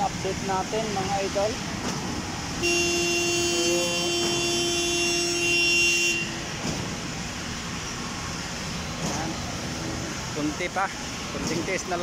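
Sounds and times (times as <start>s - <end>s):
long horn blast: 2.6s - 6.6s.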